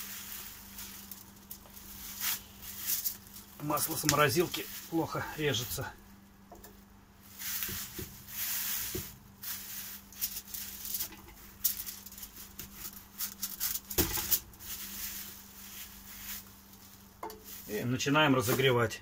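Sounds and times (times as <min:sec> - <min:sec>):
plastic bag rustling: 0:00.0 - 0:06.0, 0:07.2 - 0:18.8.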